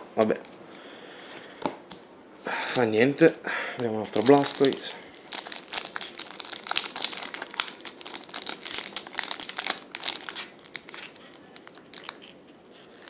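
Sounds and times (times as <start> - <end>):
foil wrapper crinkling: 3.8 - 13.0.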